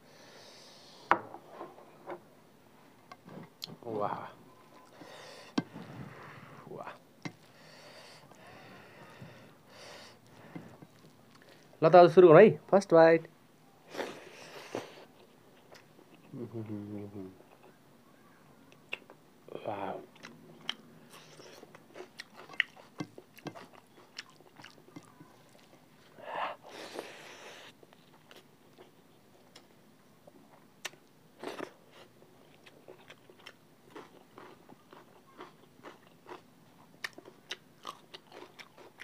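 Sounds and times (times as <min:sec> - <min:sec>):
person chewing with wet mouth clicks: 0:21.4 - 0:25.7, 0:30.8 - 0:31.1.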